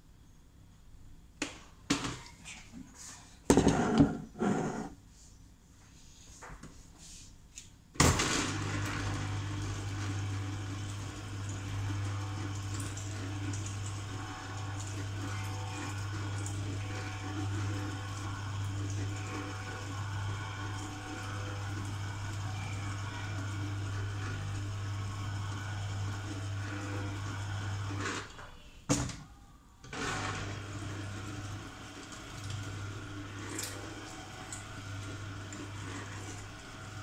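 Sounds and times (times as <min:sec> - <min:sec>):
juicer motor humming: 0:08.0 - 0:28.4, 0:29.9 - 0:37.0.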